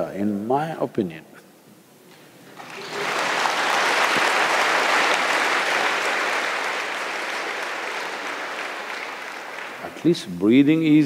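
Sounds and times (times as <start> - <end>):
audience applauding: 2.6 - 10.3.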